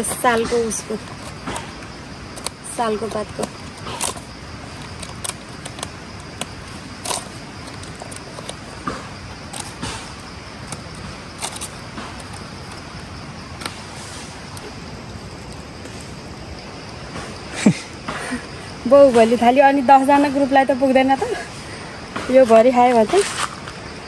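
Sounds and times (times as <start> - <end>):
steady background hiss: 0.0 - 24.0
leaves crackling and rustling: 22.3 - 23.9.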